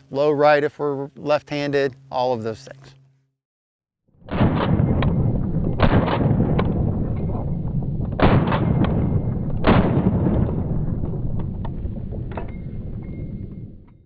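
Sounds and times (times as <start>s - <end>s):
steady low rumble: 4.2s - 14.0s
pistol shots: 4.3s - 7.5s, 8.1s - 13.4s.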